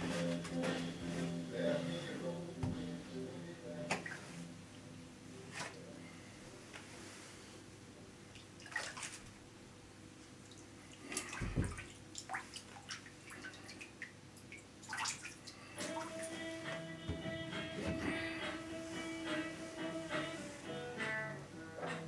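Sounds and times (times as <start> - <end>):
small splashes and drips: 8.3 - 9.4, 10.2 - 16.1
water sloshing in bathtub: 8.3 - 9.4, 10.3 - 16.4.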